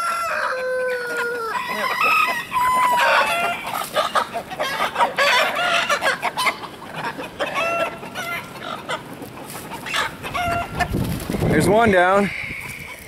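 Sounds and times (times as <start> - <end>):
chickens clucking and squawking: 0.0 - 13.0.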